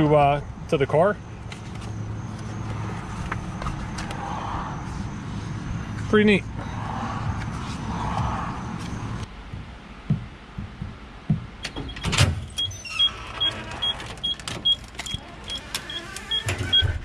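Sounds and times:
car warning chime beeping: 0:11.6 - 0:17.0.

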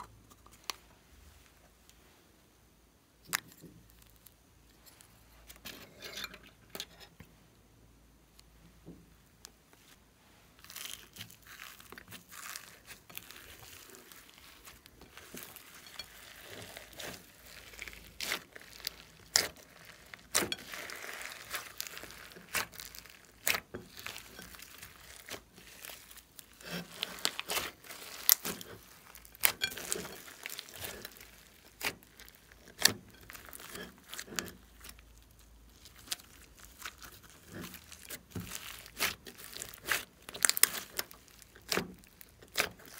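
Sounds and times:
slime squishing with crackling clicks: 0:10.6 - 0:42.9.

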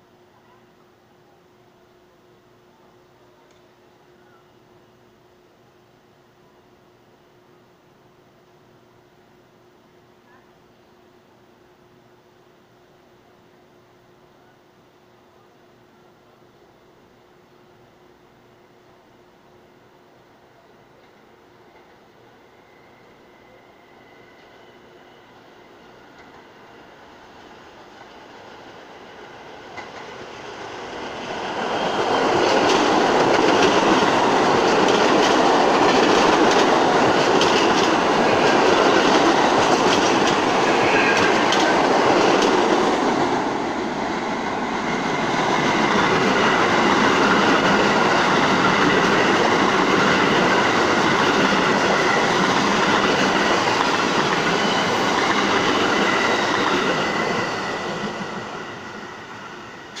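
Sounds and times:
subway trains rumbling past: 0:21.0 - 1:00.0
wheels clacking over rail joints: 0:32.0 - 0:43.5.

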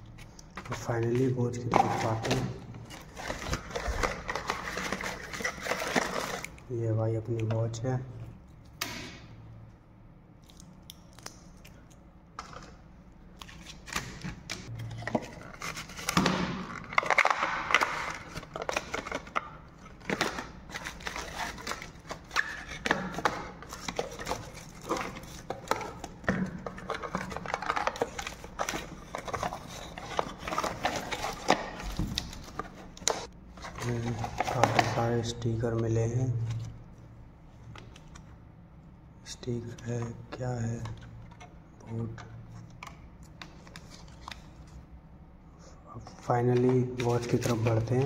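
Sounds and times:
paper packaging rustling: 0:00.6 - 0:06.6, 0:13.4 - 0:35.2, 0:46.5 - 0:48.0.

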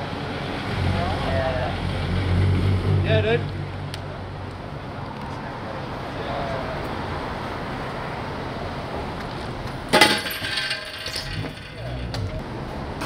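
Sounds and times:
sharp metallic clank: 0:09.9 - 0:12.4.

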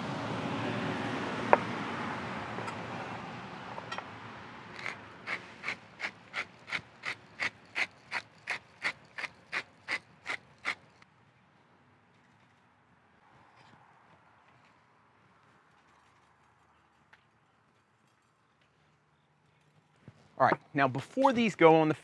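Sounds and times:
pepper mill ratcheting grinds: 0:04.8 - 0:11.0.

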